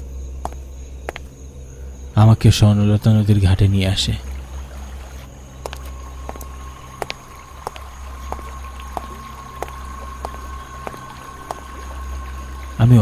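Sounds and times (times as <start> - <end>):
steady low hum: 0.0 - 13.0
thin high tone: 3.9 - 13.0.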